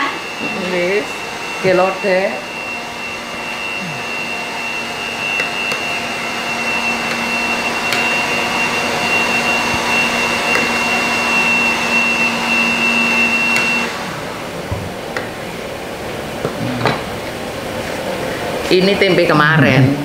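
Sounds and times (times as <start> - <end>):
electric motor whirring: 0.0 - 14.6.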